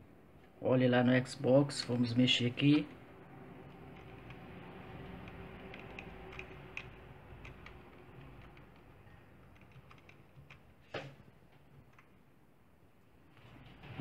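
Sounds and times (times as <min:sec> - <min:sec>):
computer keyboard key clicks: 0:05.2 - 0:08.9, 0:09.5 - 0:10.6.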